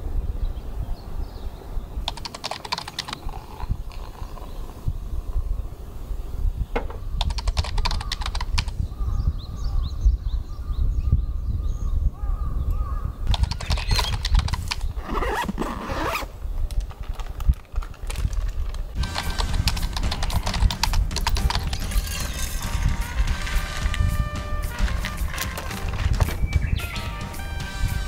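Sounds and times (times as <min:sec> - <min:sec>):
gear rustling and clicking: 0:02.1 - 0:04.8, 0:13.3 - 0:26.4.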